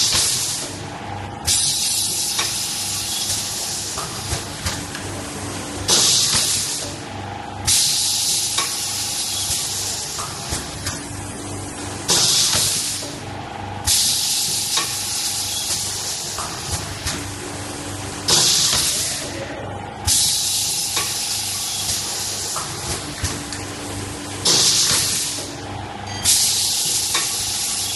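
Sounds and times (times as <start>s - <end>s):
pneumatic press hissing air: 0.0s - 0.8s, 1.5s - 4.2s, 5.9s - 7.0s, 7.7s - 10.4s, 12.1s - 13.1s, 13.9s - 16.8s, 18.3s - 19.1s, 20.1s - 23.1s, 24.4s - 25.5s, 26.3s - 27.9s
machine hum: 9.8s - 27.9s.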